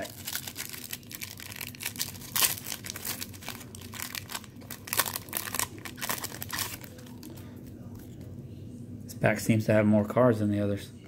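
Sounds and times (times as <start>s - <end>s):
wax paper wrapper crinkling: 0.0s - 8.2s.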